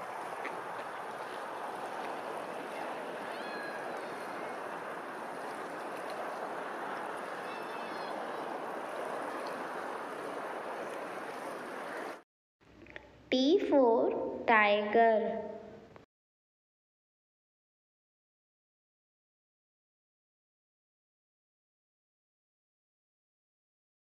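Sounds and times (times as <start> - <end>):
water lapping: 0.0 - 12.2
faint high bird calls: 3.0 - 4.8, 7.2 - 9.6.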